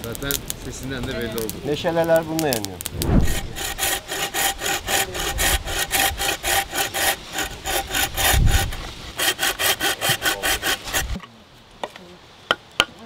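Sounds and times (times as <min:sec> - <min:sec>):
hand saw cutting wood: 0:03.2 - 0:11.2.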